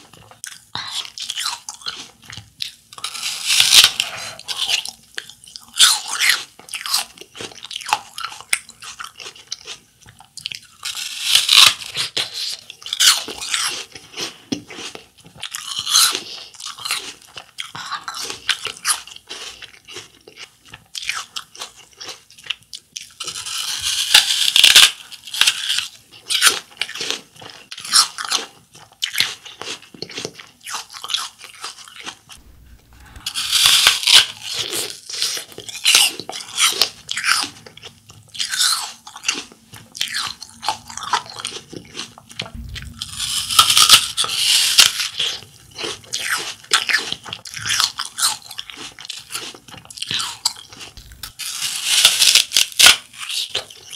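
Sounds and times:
chewing crunches: 0:00.1 - 0:53.9
apple bites crunching: 0:00.2 - 0:53.9.

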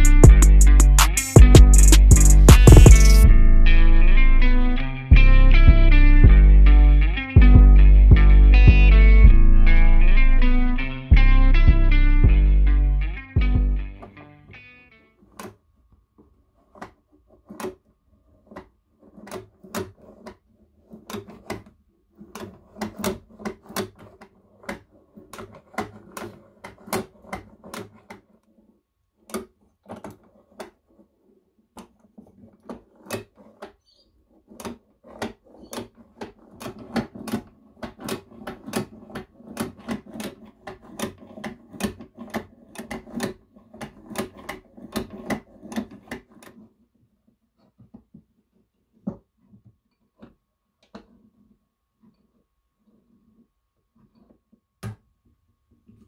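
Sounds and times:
toy sewing machine clattering: 0:16.6 - 0:46.7.

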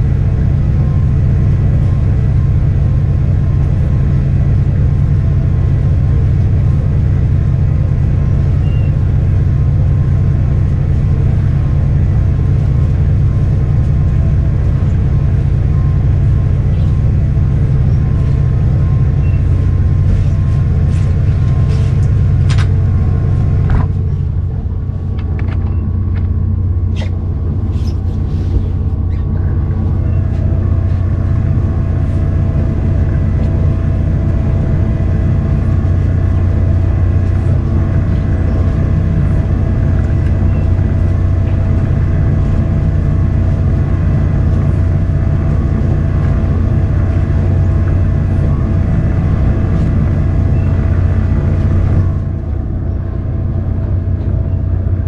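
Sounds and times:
boat engine droning: 0:00.0 - 0:55.0.

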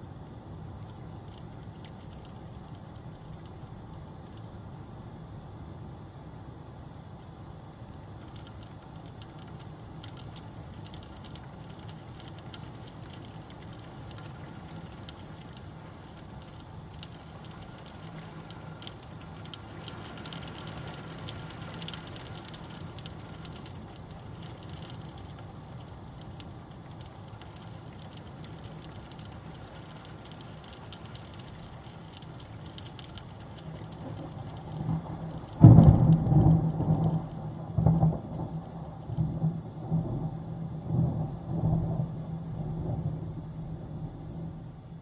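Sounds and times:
rain pattering: 0:00.0 - 0:05.3, 0:07.0 - 0:45.0
steady low rumble: 0:00.0 - 0:45.0.

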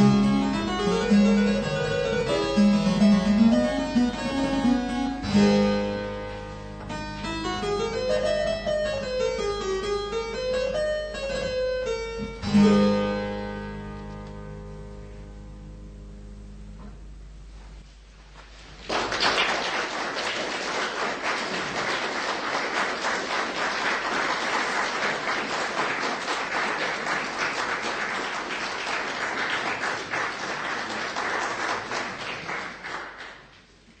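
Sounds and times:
audience applauding: 0:18.7 - 0:33.8.

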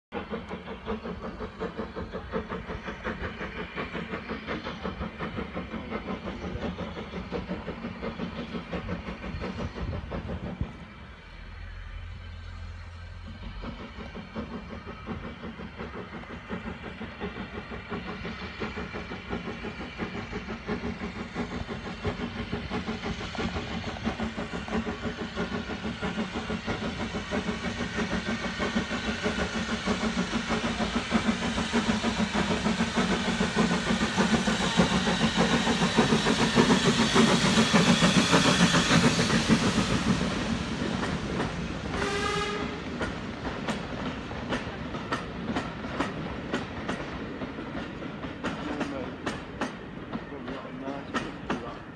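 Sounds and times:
rising whistle-like tone: 0:00.1 - 0:42.8
steam locomotive running: 0:00.1 - 0:51.9
wheels clicking over rail joints: 0:42.8 - 0:51.8.

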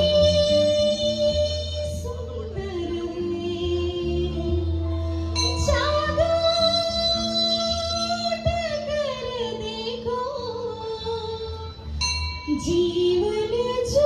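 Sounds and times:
keyboard: 0:00.0 - 0:14.0
woman singing through microphone: 0:00.0 - 0:14.0.

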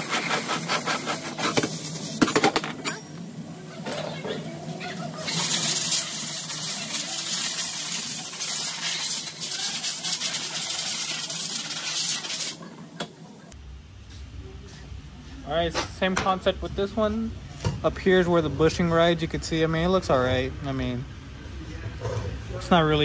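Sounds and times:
hissing spray: 0:05.2 - 0:12.6.

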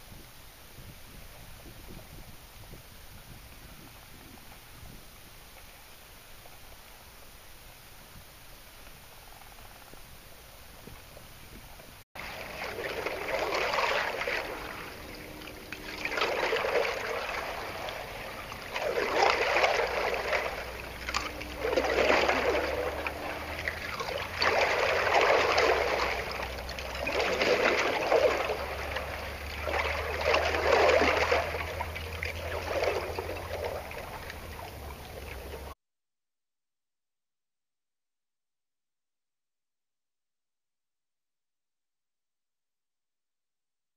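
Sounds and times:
lake water washing in swells: 0:00.4 - 0:35.8
low rumble: 0:12.2 - 0:35.8.

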